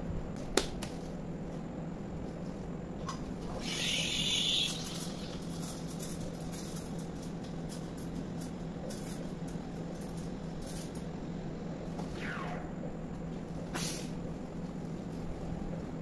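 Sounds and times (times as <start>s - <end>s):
steam hissing: 3.6s - 4.9s, 13.7s - 14.2s.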